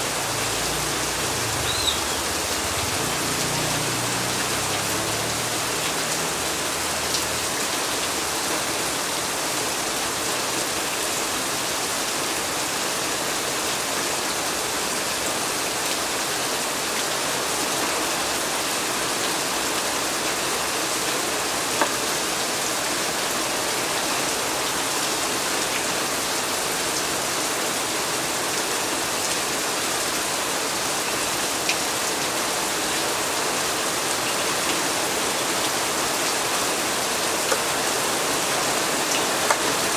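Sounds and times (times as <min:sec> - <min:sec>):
heavy rain on paving: 0:00.0 - 0:39.9.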